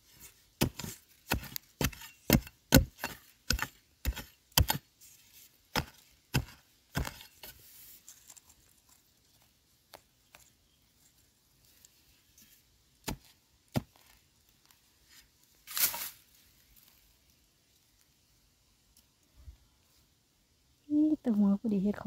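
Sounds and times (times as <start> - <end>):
metal blade chopping into soil: 0.2 - 4.9, 5.7 - 7.6.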